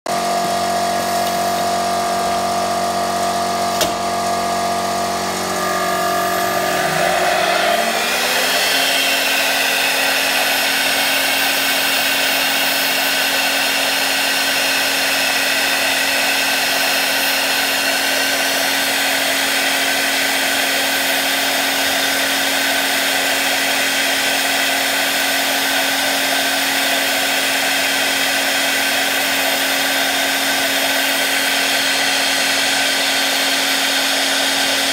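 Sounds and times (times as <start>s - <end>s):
milling spindle whine: 0.1s - 24.4s
end mill cutting cane: 0.1s - 34.9s.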